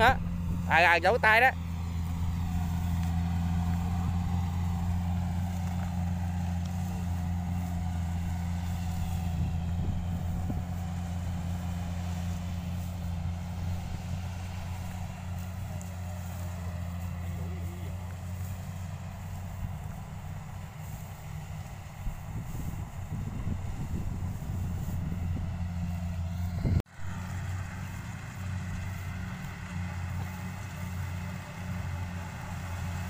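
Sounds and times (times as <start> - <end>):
farm machine engine humming: 0.0 - 33.0.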